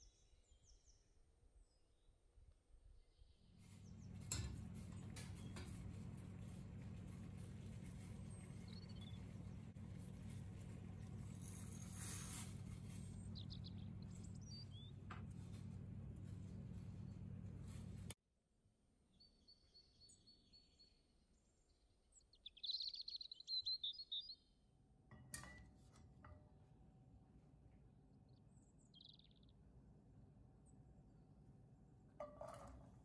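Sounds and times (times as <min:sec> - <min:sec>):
low electrical hum: 0:03.6 - 0:18.2.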